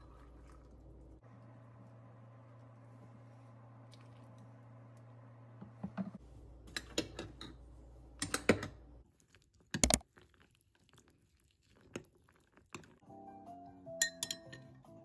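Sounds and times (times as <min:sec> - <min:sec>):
spoon tapping glass mug: 0:14.0 - 0:14.6.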